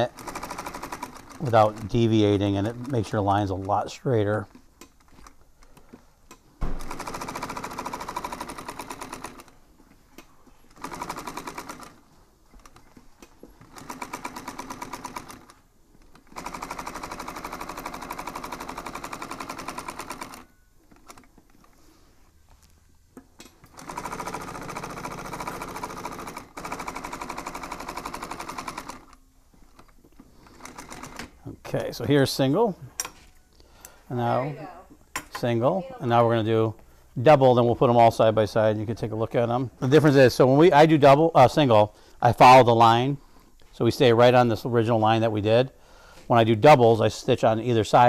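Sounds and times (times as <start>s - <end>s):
sewing machine stitching: 0.0s - 5.4s, 6.7s - 9.6s, 10.7s - 21.3s, 23.6s - 31.4s.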